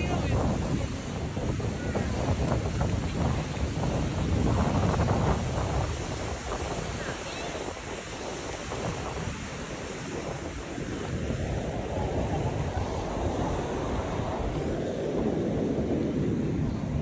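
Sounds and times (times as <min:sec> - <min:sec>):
sea waves breaking on shore: 0:00.0 - 0:17.0
wind rumbling on microphone: 0:00.0 - 0:17.0.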